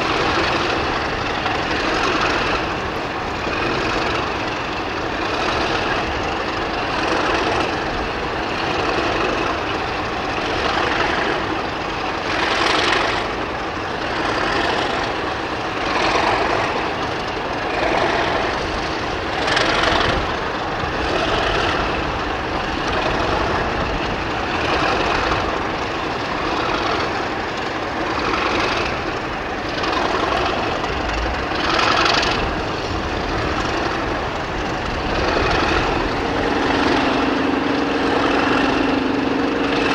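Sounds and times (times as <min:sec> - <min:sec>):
diesel locomotive engine running: 0:00.0 - 0:39.9.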